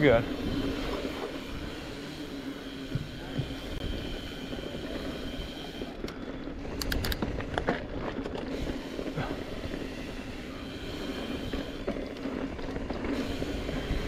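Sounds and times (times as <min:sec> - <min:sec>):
bike rumbling on dirt trail: 0:00.0 - 0:14.0
bike clicks and knocks: 0:02.6 - 0:10.1.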